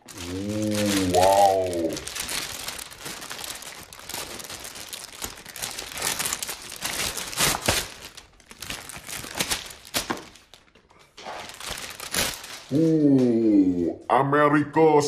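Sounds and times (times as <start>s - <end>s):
plastic wrapping crinkling: 0.0s - 13.4s.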